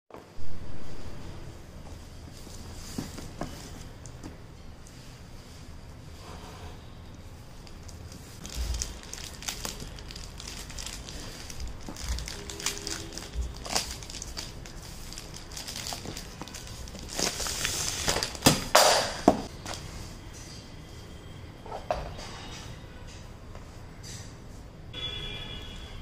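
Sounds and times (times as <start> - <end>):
plastic bag crinkling and tearing: 7.6 - 18.8.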